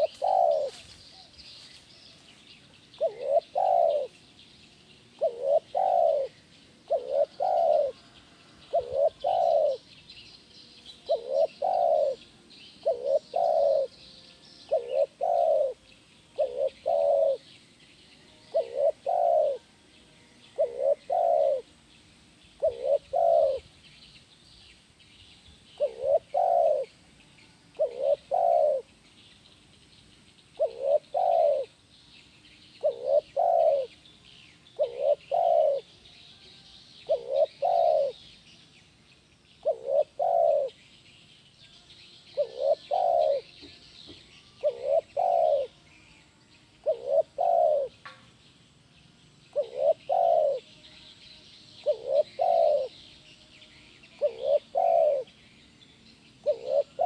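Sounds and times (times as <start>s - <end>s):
dove cooing: 0.0s - 1.3s, 2.9s - 4.2s, 5.1s - 9.9s, 11.0s - 14.0s, 14.7s - 17.5s, 18.5s - 19.7s, 20.5s - 21.8s, 22.6s - 23.8s, 25.8s - 27.0s, 27.8s - 28.9s, 30.6s - 31.8s, 32.8s - 34.0s, 34.7s - 35.9s, 37.0s - 38.2s, 39.6s - 40.8s, 42.4s - 43.8s, 44.6s - 45.8s, 46.8s - 48.0s, 49.5s - 50.7s, 51.8s - 53.0s, 54.2s - 55.3s, 56.4s - 57.0s
faint high chirping: 0.0s - 57.0s.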